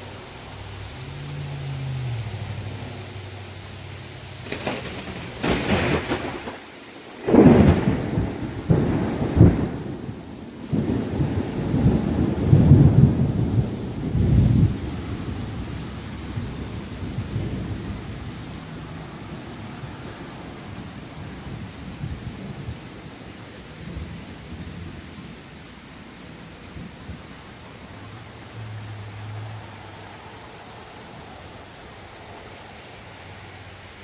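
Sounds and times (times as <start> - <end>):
steady rain: 0.0 - 34.0
thunder cracks and rumble: 4.4 - 18.5.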